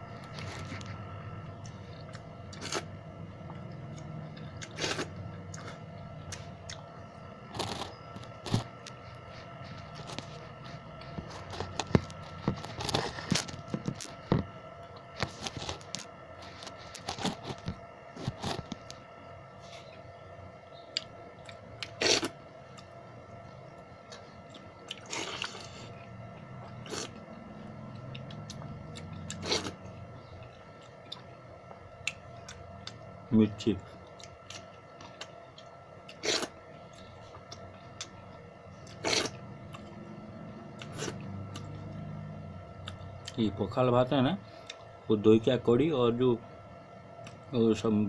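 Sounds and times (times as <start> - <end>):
faint steady hum: 0.0 - 48.0
chewing: 24.1 - 27.2, 27.9 - 31.4.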